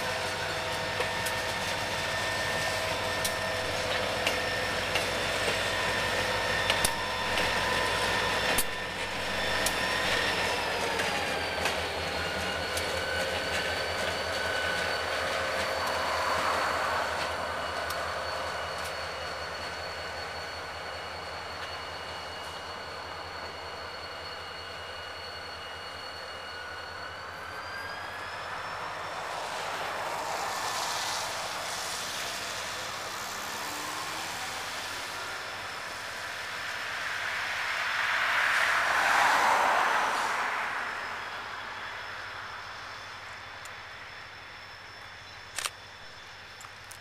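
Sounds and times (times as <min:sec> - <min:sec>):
freight train rolling: 0:00.0 - 0:47.0
high whine: 0:00.0 - 0:47.0
sharp click: 0:45.5 - 0:45.8.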